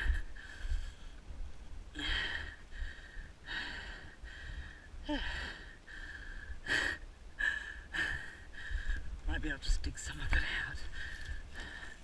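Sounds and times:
person breathing hard: 0:00.0 - 0:01.2, 0:01.9 - 0:09.1, 0:10.9 - 0:12.0.

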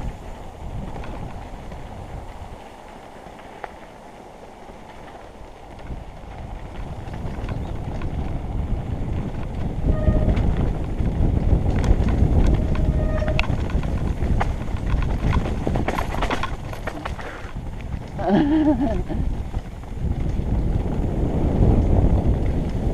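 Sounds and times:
bike rattling: 0:00.0 - 0:22.9
tyres crunching over stones: 0:10.4 - 0:21.0
brief squeaks: 0:12.6 - 0:13.6.

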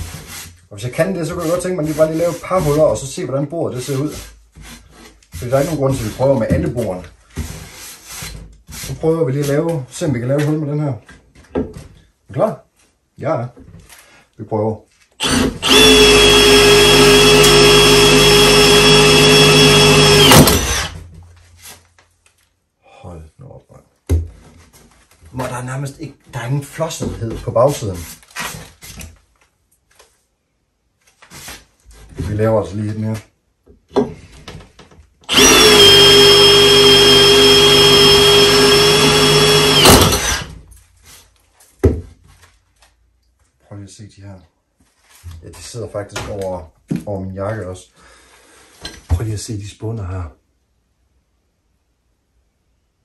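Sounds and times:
power drill boring through iron: 0:15.2 - 0:21.0, 0:35.3 - 0:40.6.

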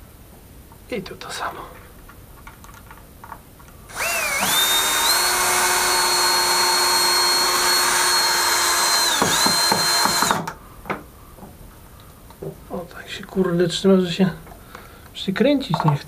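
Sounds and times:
cordless drill motor whine: 0:03.9 - 0:10.5
drill clicks: 0:03.9 - 0:10.6.

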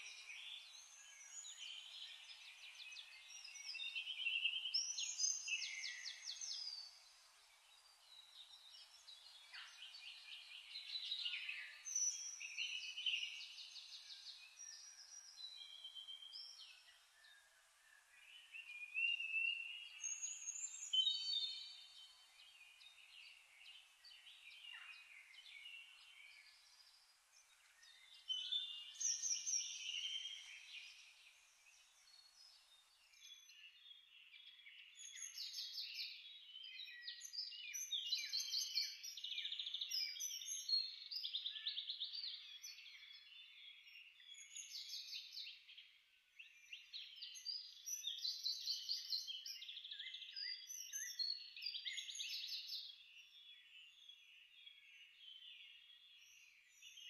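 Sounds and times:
birds chirping and trilling: 0:00.0 - 0:45.9, 0:46.5 - 0:57.0.

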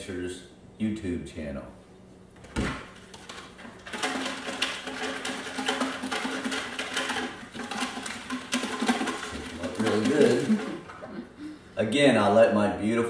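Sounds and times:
paper slips rattling in plastic canister: 0:03.1 - 0:11.0.

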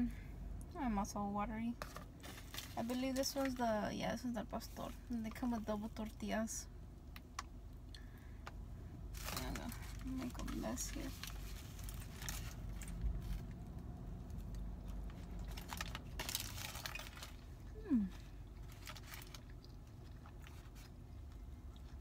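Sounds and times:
aluminium foil crinkling: 0:02.0 - 0:06.2, 0:09.1 - 0:13.6, 0:14.3 - 0:17.7, 0:18.6 - 0:20.9.

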